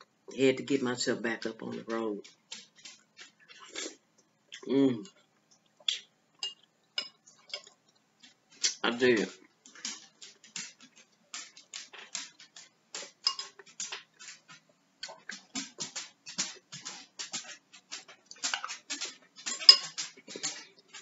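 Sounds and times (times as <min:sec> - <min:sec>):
chewing and lip-smacking: 0:01.4 - 0:21.0
spoon clinking on ceramic bowl: 0:13.2 - 0:13.5, 0:19.7 - 0:20.0.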